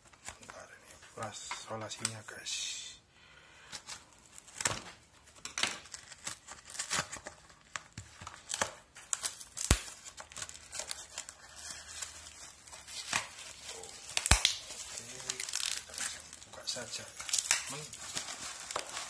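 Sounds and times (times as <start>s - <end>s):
packaging rustling: 3.7s - 19.0s
packing tape ripping off cardboard: 3.8s - 19.0s.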